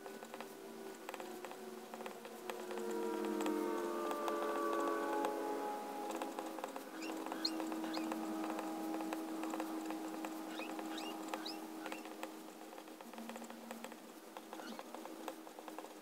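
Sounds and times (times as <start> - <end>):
high nib squeaks: 6.6 - 8.6, 10.3 - 12.2.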